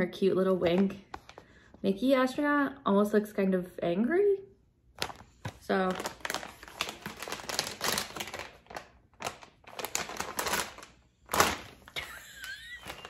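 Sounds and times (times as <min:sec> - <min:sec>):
plastic packaging crinkling: 0:05.0 - 0:13.0.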